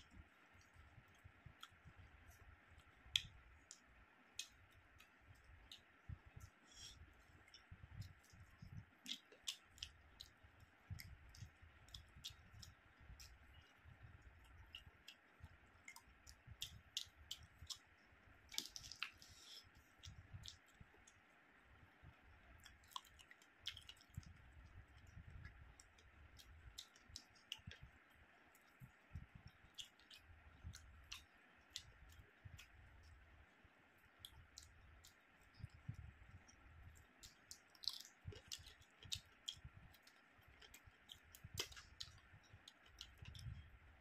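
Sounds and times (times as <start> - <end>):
man chewing and lip smacking: 0.0 - 33.3, 33.9 - 44.0
wet mouth clicks: 4.4 - 17.9, 18.5 - 21.1, 22.6 - 33.2, 34.2 - 43.6.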